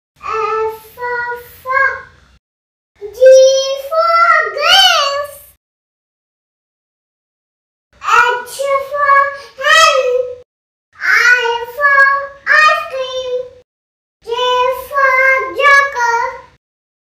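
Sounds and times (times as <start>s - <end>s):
girl chanting in sing-song voice: 0.2s - 2.1s, 3.0s - 5.5s, 8.0s - 10.4s, 11.0s - 13.6s, 14.2s - 16.5s.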